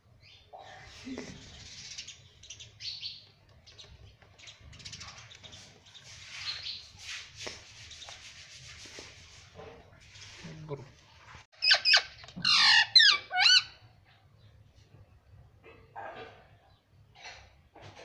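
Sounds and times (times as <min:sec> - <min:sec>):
scratchy rustling: 0:05.1 - 0:11.5.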